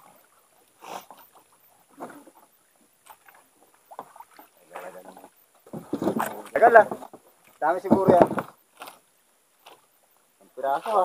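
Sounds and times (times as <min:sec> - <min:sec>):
water slapping against boat hull: 0:03.0 - 0:08.6.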